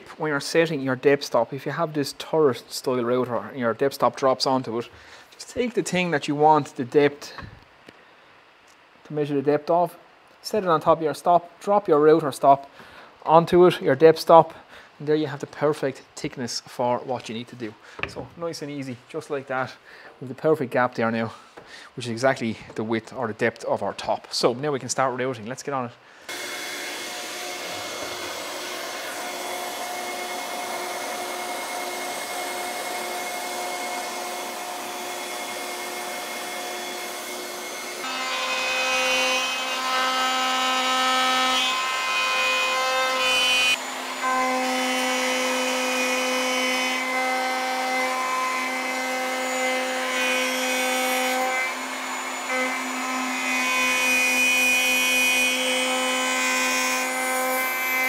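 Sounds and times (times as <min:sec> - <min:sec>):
router cutting plywood: 0:26.3 - 0:58.0.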